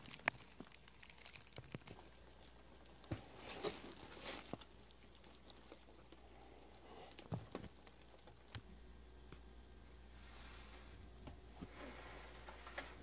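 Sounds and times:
plastic wrap rustling: 0.0 - 6.2.

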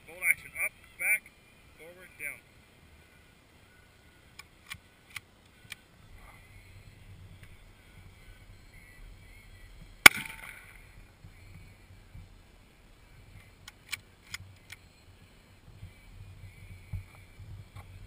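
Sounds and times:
rifle shot: 10.0 - 10.7.

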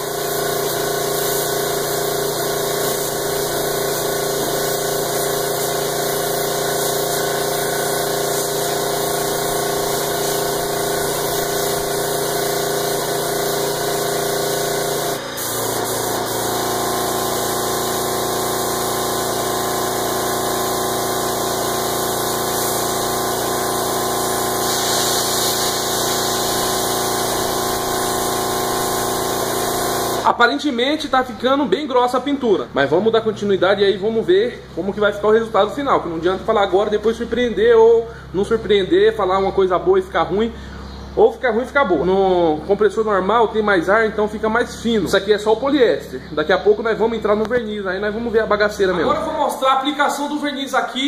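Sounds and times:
spray gun hissing: 0.0 - 30.4
compressor humming: 0.0 - 50.8.

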